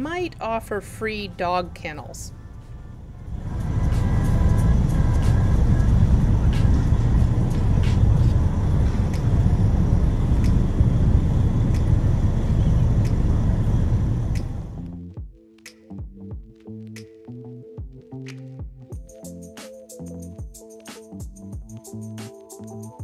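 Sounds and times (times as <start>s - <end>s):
engine low rumble: 0.0s - 15.1s.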